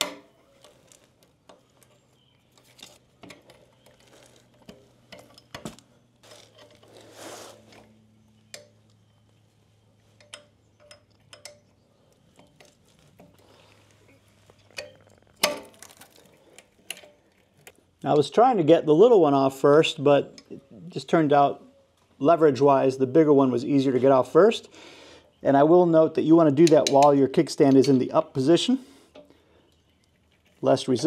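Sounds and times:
metal scrape: 0:06.2 - 0:08.0
metallic clicks and clinks: 0:10.2 - 0:13.3.

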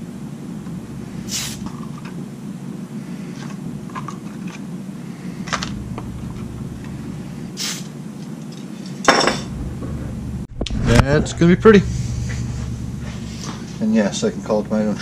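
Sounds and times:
extraction fan humming: 0:00.0 - 0:15.0
short hisses: 0:01.3 - 0:01.6, 0:07.5 - 0:07.9.

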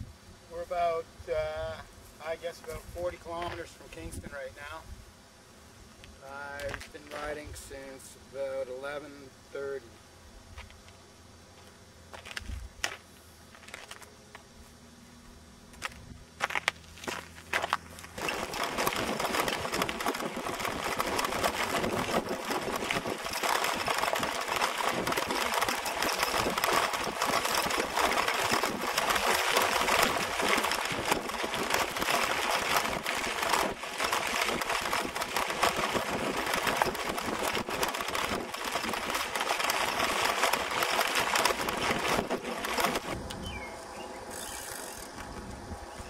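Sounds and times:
tyres on gravel: 0:00.6 - 0:04.8, 0:06.2 - 0:08.0, 0:10.5 - 0:14.8, 0:15.7 - 0:46.0
bike rattling over bumps: 0:15.8 - 0:46.0.

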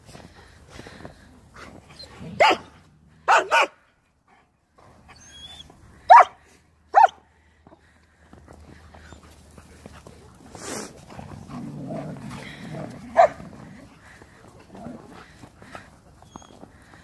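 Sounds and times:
dog sharp bark: 0:03.3 - 0:03.8.

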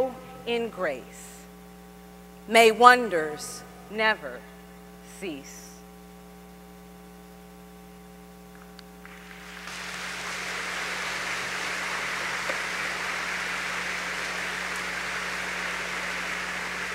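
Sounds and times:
electrical mains hum: 0:00.0 - 0:16.9
audience applause: 0:09.0 - 0:16.9.

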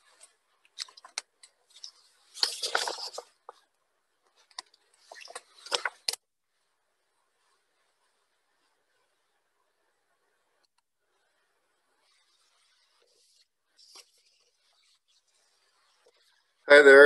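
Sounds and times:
handling clicks and rustling: 0:00.0 - 0:03.7.

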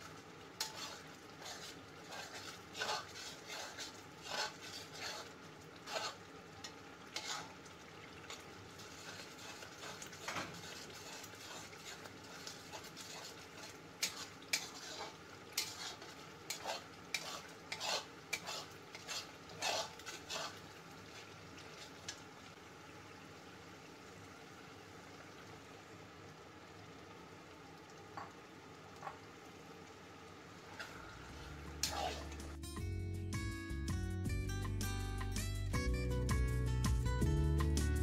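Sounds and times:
masala sizzling in oil: 0:00.0 - 0:34.0
metal spatula scraping a pan: 0:00.6 - 0:07.6, 0:08.2 - 0:22.2, 0:30.8 - 0:32.6.

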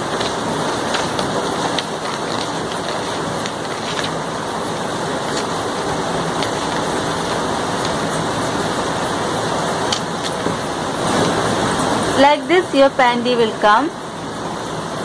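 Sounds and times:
scissors snipping paper: 0:00.0 - 0:04.3, 0:06.2 - 0:08.1
paper rustling: 0:00.0 - 0:08.8, 0:09.9 - 0:11.4
loud steady rushing noise: 0:00.0 - 0:15.0.

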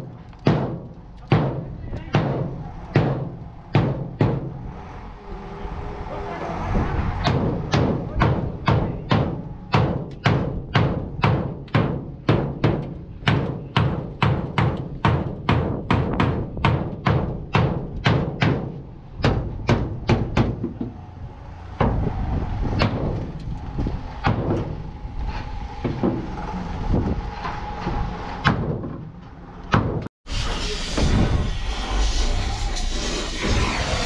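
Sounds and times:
hammer knocking on sheet metal: 0:00.5 - 0:04.5, 0:07.2 - 0:21.0.

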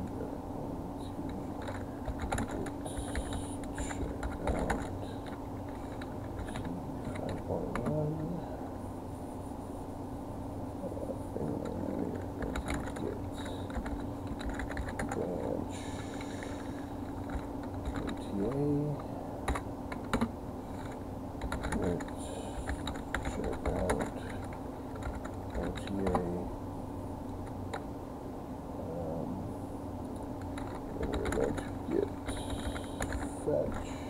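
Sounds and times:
steady low hum: 0:00.0 - 0:34.0
typing on computer keyboard: 0:01.6 - 0:08.0, 0:11.5 - 0:15.5, 0:16.1 - 0:18.7, 0:19.5 - 0:26.3, 0:30.4 - 0:33.8.

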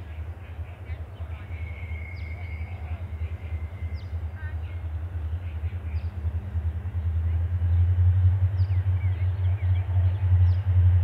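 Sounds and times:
bird calls: 0:00.0 - 0:06.3
distant diesel locomotive rumble: 0:00.0 - 0:11.0.

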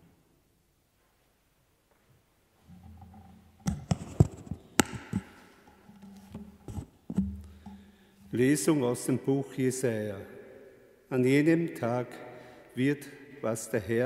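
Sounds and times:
microphone handling knocks and clicks: 0:02.7 - 0:07.8.

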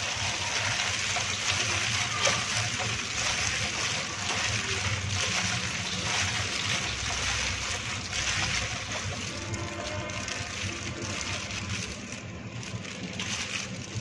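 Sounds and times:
plastic gloves crinkling: 0:00.0 - 0:14.0
wet rustling of leaves: 0:00.0 - 0:14.0.

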